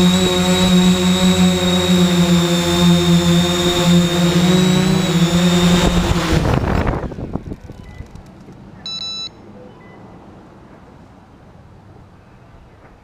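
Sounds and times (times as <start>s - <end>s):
drone motors and propellers: 0.0s - 8.6s
short electronic beep: 8.8s - 10.1s.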